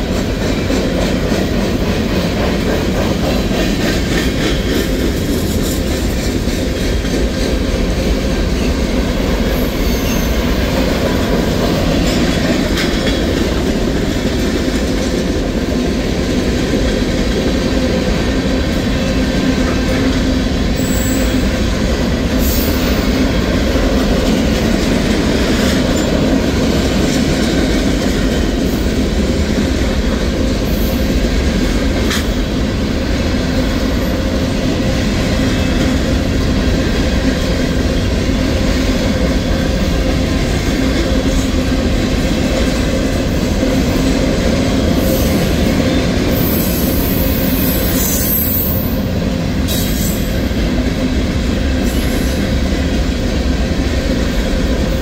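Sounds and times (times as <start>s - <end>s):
steel wheels rumbling on rail: 0.0s - 55.0s
clatter over rail joints: 10.6s - 15.7s.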